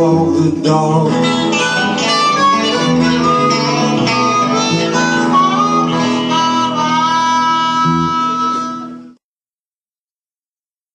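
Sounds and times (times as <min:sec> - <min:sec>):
guitars: 0:00.0 - 0:09.2
harmonica playing held notes: 0:01.2 - 0:09.2.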